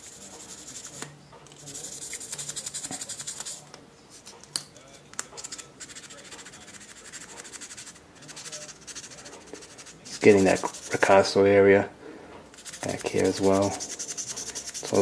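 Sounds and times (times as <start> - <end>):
sandpaper rubbing on metal blade: 0.0 - 1.0, 1.6 - 3.6, 5.8 - 11.1, 12.6 - 15.0.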